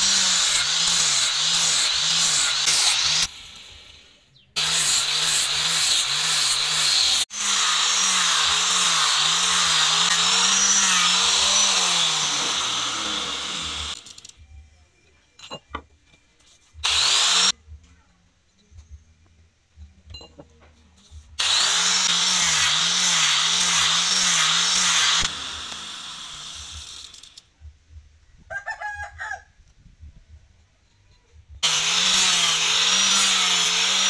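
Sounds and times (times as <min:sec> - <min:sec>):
angle grinder sanding wood: 0:00.0 - 0:03.8, 0:04.6 - 0:14.0, 0:16.8 - 0:17.5, 0:21.4 - 0:27.0, 0:31.6 - 0:34.0.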